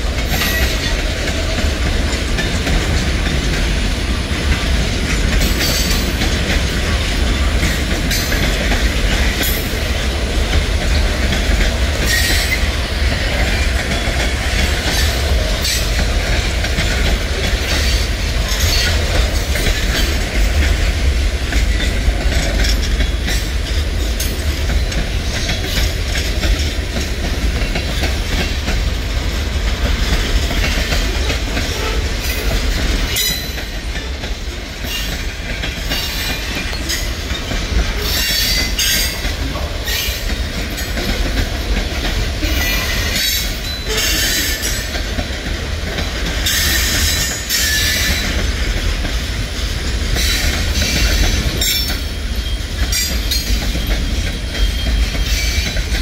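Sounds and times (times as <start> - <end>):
freight train rumbling past: 0.0 - 56.0
wheels clattering over rails: 0.0 - 56.0.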